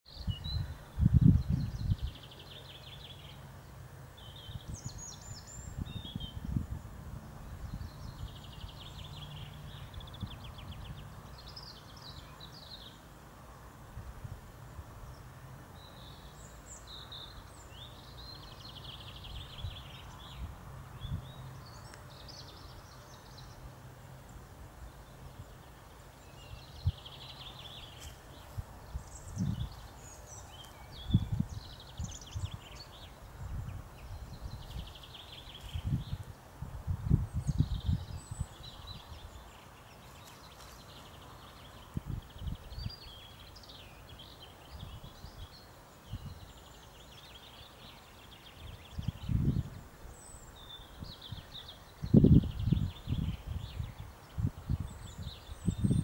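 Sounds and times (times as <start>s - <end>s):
songbirds trilling: 0.1s - 13.7s, 14.6s - 56.0s
faint outdoor hiss: 0.1s - 56.0s
low rumbles on microphone: 0.2s - 2.2s, 28.9s - 29.8s.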